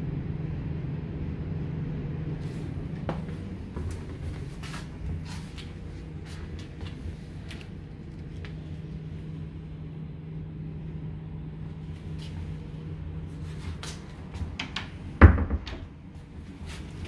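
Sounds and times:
steady low hum: 0.0s - 17.0s
cupboard door thud: 15.2s - 15.8s.

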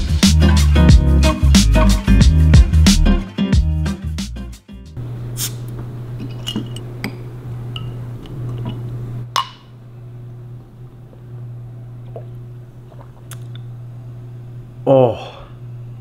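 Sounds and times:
steady low hum: 5.0s - 16.0s
glass bottle clinking: 6.2s - 8.0s.

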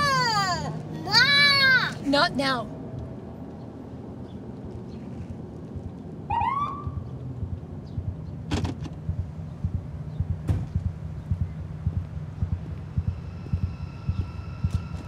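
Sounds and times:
police siren whoop: 6.3s - 7.0s
low irregular thumping: 6.8s - 15.0s.

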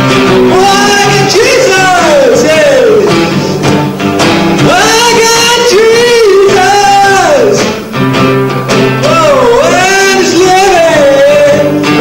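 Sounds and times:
strummed acoustic guitar: 0.0s - 12.0s
man singing into microphone: 0.4s - 3.6s, 4.6s - 7.8s, 9.0s - 12.0s.

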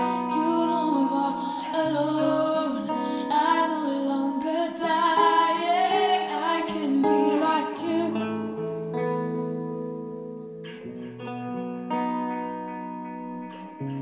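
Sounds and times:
woman singing: 0.0s - 9.2s
instrumental backing: 0.0s - 14.0s.

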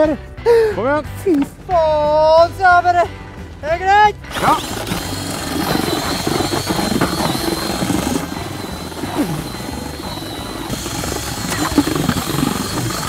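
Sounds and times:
cordless drill high whine: 4.3s - 13.0s
vehicle engine droning: 4.3s - 13.0s.

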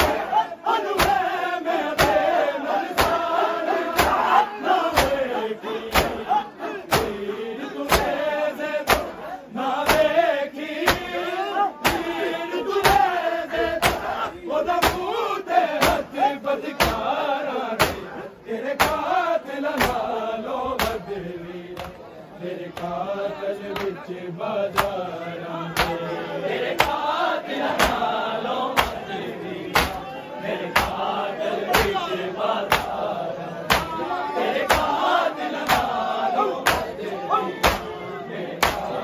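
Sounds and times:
men chanting in unison: 0.0s - 39.0s
hands striking chests: 10.8s - 11.1s, 17.8s - 18.1s, 18.8s - 19.0s, 27.7s - 28.0s, 28.8s - 29.0s, 29.7s - 30.0s, 30.8s - 31.0s, 31.7s - 32.0s, 32.7s - 33.0s, 33.7s - 34.0s, 36.6s - 37.0s, 37.6s - 37.9s, 38.6s - 38.9s.

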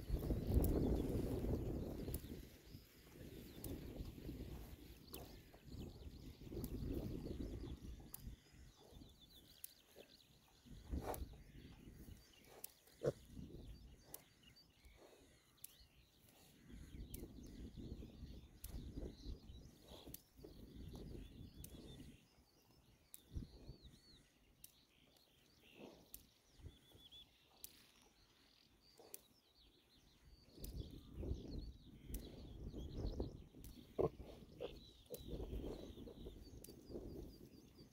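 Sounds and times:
piglets tearing and chewing grass: 0.0s - 5.6s
wind rumble on microphone: 0.0s - 15.0s, 16.5s - 22.4s, 23.1s - 24.2s, 30.1s - 37.9s
faint bird chirps: 0.0s - 37.9s.

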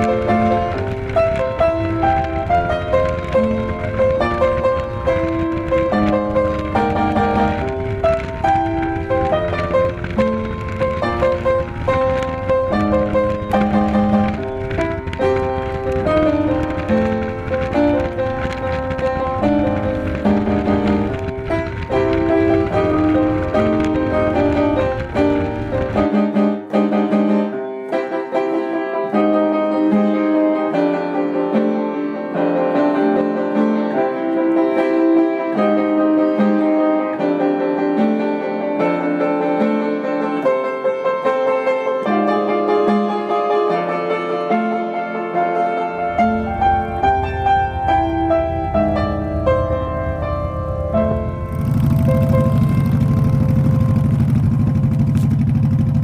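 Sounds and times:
low rumbling noise: 0.0s - 26.4s, 46.1s - 56.0s
piano music: 0.0s - 56.0s.

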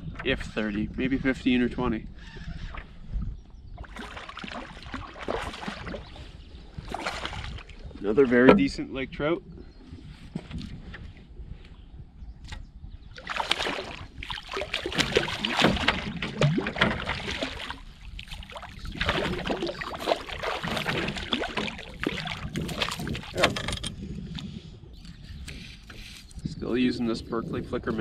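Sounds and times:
fish splashing at the surface: 13.2s - 23.4s.

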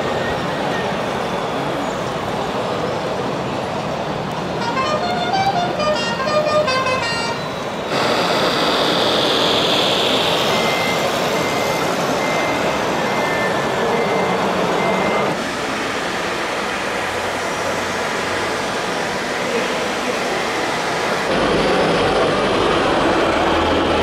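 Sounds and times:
steady noisy background: 0.0s - 24.0s
reversing beeper: 7.0s - 15.4s.

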